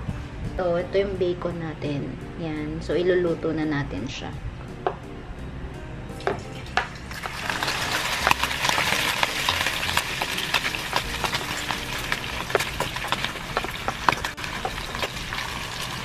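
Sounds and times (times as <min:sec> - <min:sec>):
bacon sizzling in a frying pan: 0:07.0 - 0:16.0.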